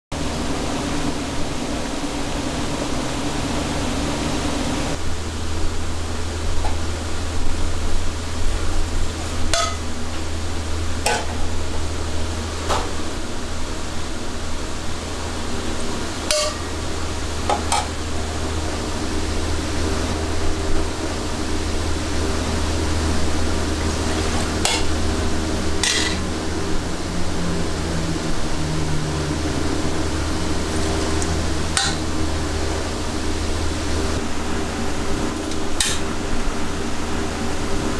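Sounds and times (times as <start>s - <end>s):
kitchen hum and hiss: 0.1s - 37.9s
ladle clinking against pots: 9.6s - 9.8s, 16.3s - 16.7s, 25.8s - 26.2s, 31.8s - 32.0s.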